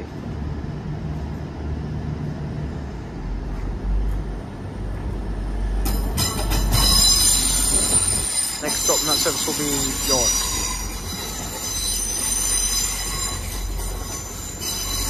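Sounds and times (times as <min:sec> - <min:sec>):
diesel engine rumble: 0:00.0 - 0:14.1
train wheel squeal: 0:05.9 - 0:15.0.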